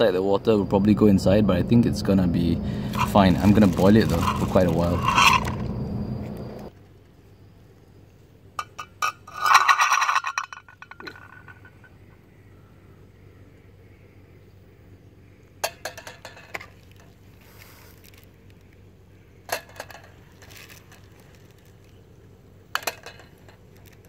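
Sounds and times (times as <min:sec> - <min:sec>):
camping pot and utensils clinking: 0:02.9 - 0:05.7, 0:08.6 - 0:11.7, 0:19.5 - 0:20.8, 0:22.8 - 0:24.0.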